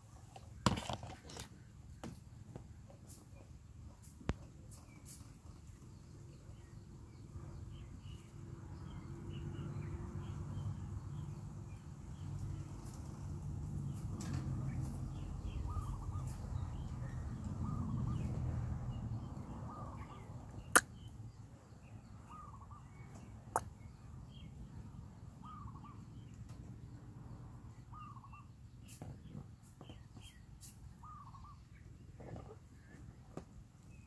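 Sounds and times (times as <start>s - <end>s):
bird calling: 31.0s - 31.6s.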